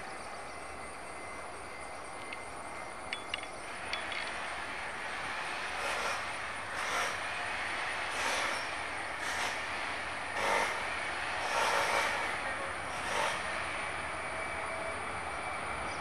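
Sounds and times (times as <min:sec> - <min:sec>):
distant jet engines roaring: 0:00.0 - 0:16.0.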